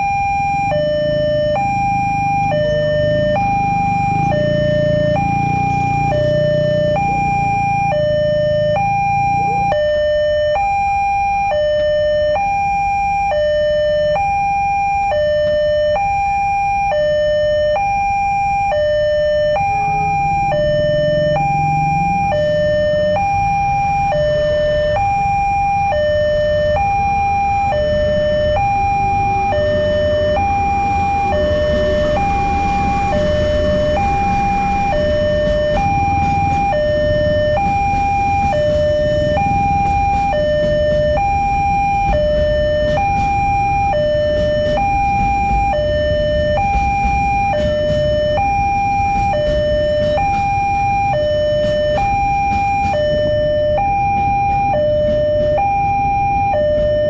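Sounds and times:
level crossing two-tone alarm: 0:00.0 - 0:57.0
freight train rumble: 0:24.2 - 0:57.0.

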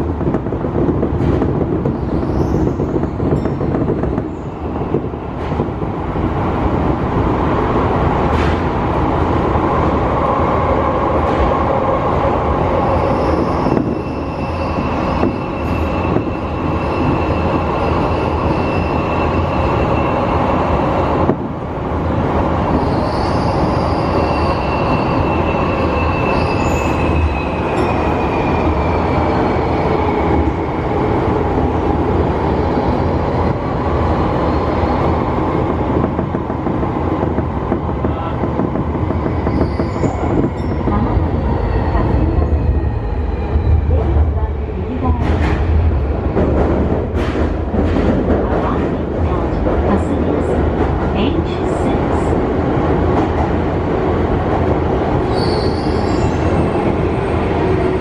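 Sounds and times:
train wheels rumbling on rail: 0:00.0 - 0:58.0
high wheel squeal: 0:12.8 - 0:20.3, 0:22.7 - 0:29.5, 0:55.3 - 0:56.9.

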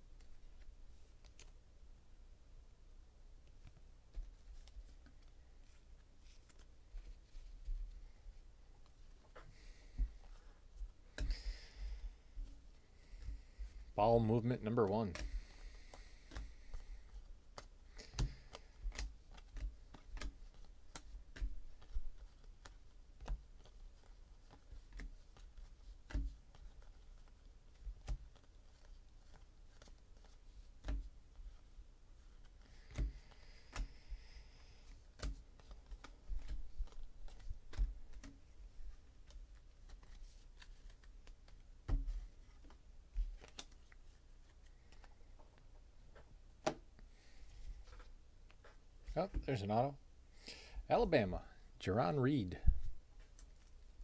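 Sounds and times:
paper cards flipped and dealt: 0:00.2 - 0:01.6, 0:03.6 - 0:07.7, 0:14.8 - 0:49.4.

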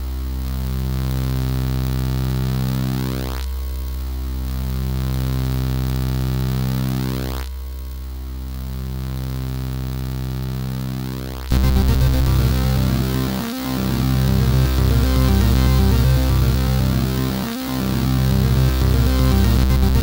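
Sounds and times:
buzzy one-bit beeper music: 0:11.5 - 0:20.0.

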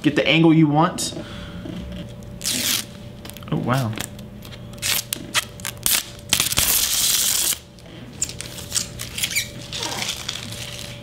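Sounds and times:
packaging rustling: 0:08.2 - 0:11.0.

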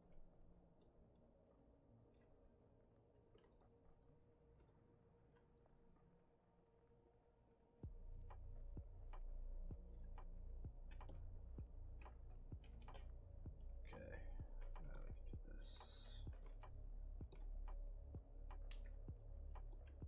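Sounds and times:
low steady hum: 0:07.8 - 0:20.0.

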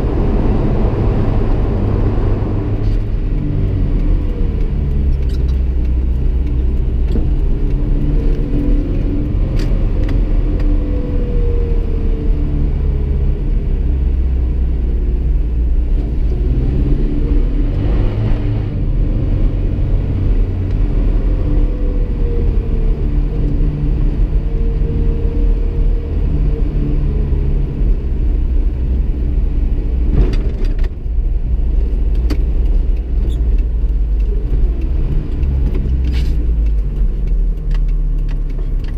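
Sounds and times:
car engine running: 0:00.0 - 0:25.0
low road rumble: 0:00.0 - 0:38.9.

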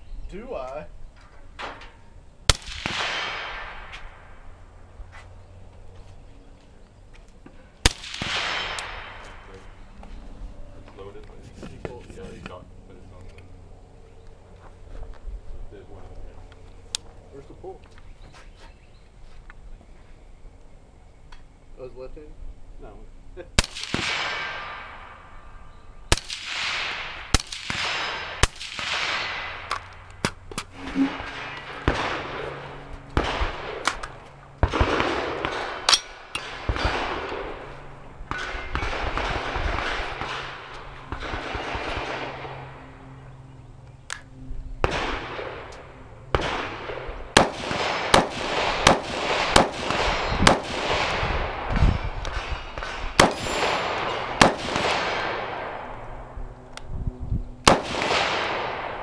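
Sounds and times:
rifle shots echoing: 0:02.5 - 0:04.4, 0:07.8 - 0:09.8, 0:23.6 - 0:25.5, 0:26.1 - 0:42.8, 0:44.8 - 0:56.3, 0:57.6 - 0:59.0.

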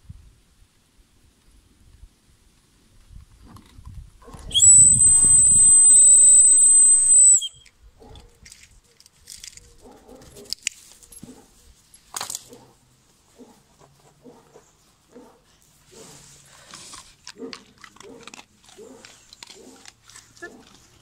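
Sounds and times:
whistle long high note: 0:04.5 - 0:07.7.

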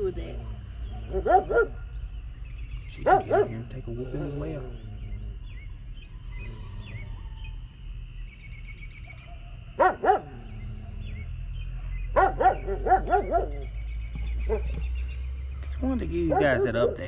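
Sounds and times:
faint bird chirps: 0:00.0 - 0:17.0
dog barking: 0:00.4 - 0:02.0, 0:02.9 - 0:03.7, 0:09.0 - 0:11.1, 0:11.7 - 0:14.9, 0:16.0 - 0:17.0.

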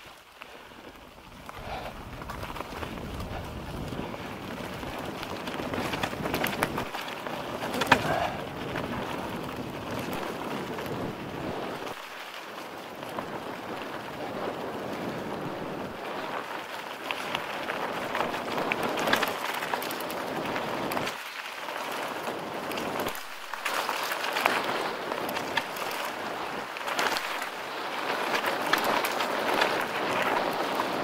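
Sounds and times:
bike clicks and rattles: 0:00.0 - 0:31.0
bike tyres rolling over ground: 0:00.0 - 0:31.0
wind on microphone: 0:00.9 - 0:12.2, 0:12.8 - 0:21.2.

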